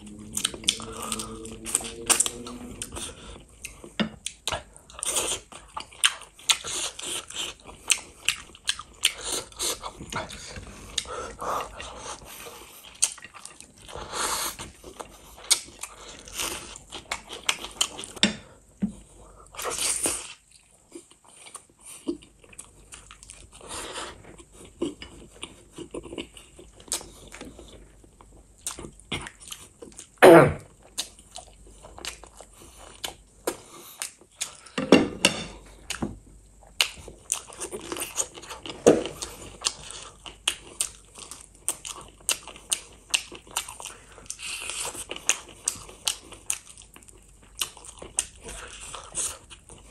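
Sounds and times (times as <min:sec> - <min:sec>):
chewing and biting: 0:00.1 - 0:18.3, 0:30.8 - 0:34.8, 0:36.6 - 0:49.9.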